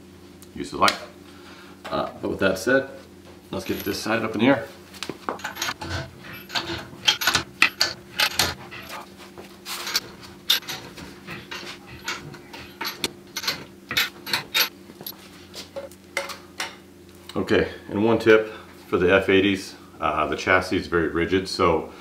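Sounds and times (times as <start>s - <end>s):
footsteps on concrete: 4.8s - 5.4s
floor jack clanking and scraping: 5.2s - 14.7s.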